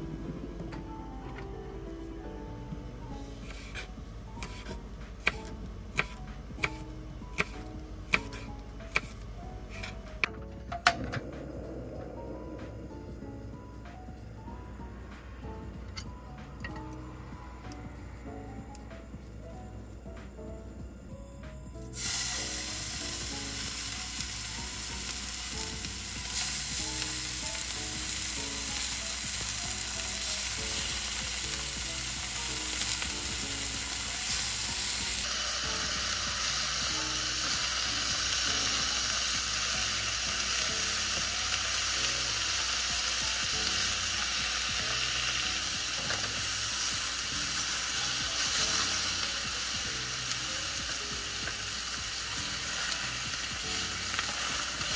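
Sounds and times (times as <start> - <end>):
hot oil sizzling in a frying pan: 21.9 - 54.9.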